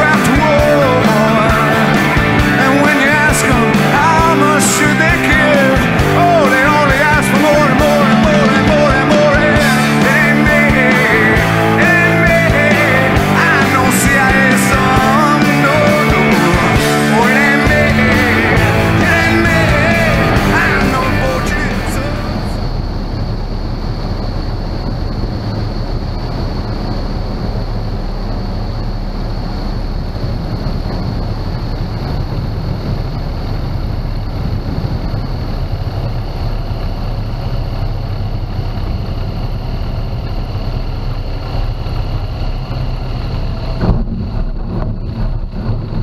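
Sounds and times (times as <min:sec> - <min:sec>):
airflow noise: 0:00.0 - 0:46.0
light aircraft engine and propeller: 0:00.0 - 0:46.0.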